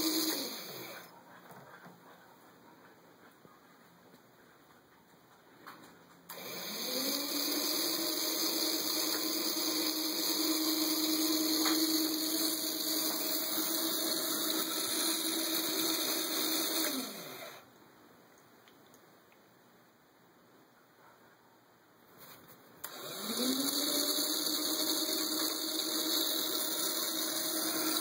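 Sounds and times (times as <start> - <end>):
small electric motor whirring: 0.0 - 1.1, 6.3 - 17.6, 22.8 - 28.0.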